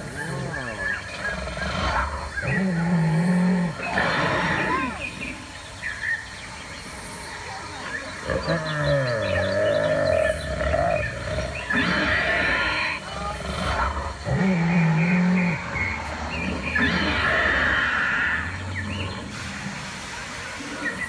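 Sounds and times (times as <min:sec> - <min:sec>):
dinosaur roars from loudspeaker: 0:08.3 - 0:19.4.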